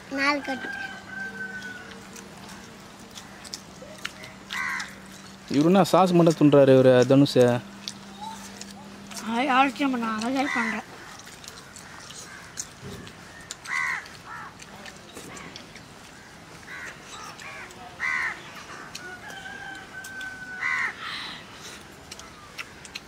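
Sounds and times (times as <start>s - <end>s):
crows cawing: 4.2s - 5.2s, 10.3s - 12.7s, 13.6s - 14.6s, 16.1s - 21.4s.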